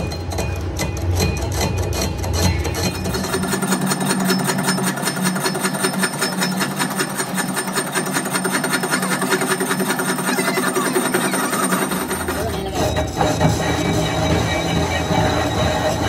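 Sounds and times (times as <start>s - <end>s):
lathe humming: 0.0s - 16.0s
lathe tool knocking on metal: 0.0s - 16.0s.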